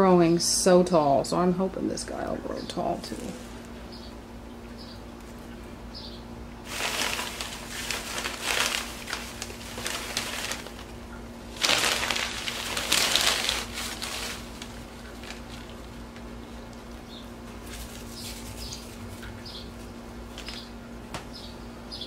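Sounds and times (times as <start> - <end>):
paper crinkling and rustling: 6.6 - 19.3, 20.3 - 20.7.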